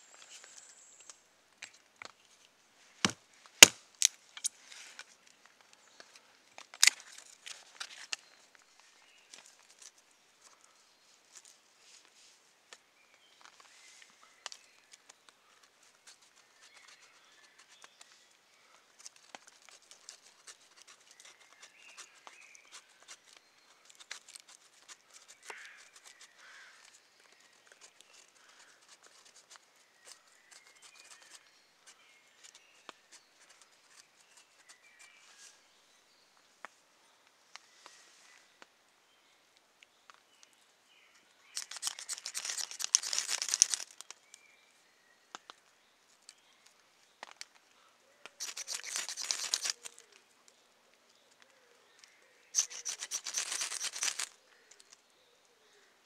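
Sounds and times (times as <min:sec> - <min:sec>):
small sharp ticks: 0:15.9 - 0:31.5, 0:41.5 - 0:44.4, 0:45.3 - 0:50.2, 0:51.3 - 0:55.0
knife scraping wood: 0:48.4 - 0:50.0, 0:52.6 - 0:54.4.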